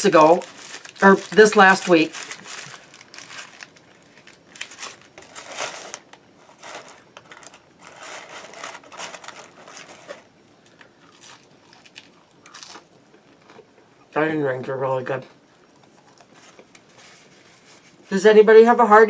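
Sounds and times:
paper wrapper crinkling: 0.0 - 12.9
close-up chewing: 15.6 - 16.9.

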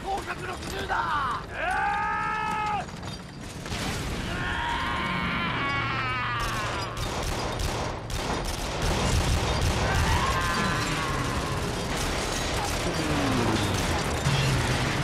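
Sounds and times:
rapid gunfire barrage: 6.4 - 15.0.

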